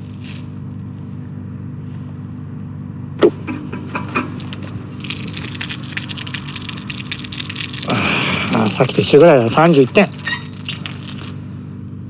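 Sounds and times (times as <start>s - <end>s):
steady low hum: 0.0s - 12.0s
water jetting and spattering: 3.3s - 11.4s.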